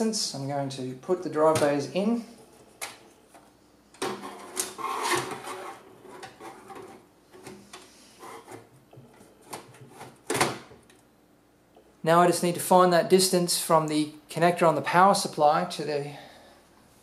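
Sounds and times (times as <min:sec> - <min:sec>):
metal cage scraping into case: 0:04.1 - 0:07.0.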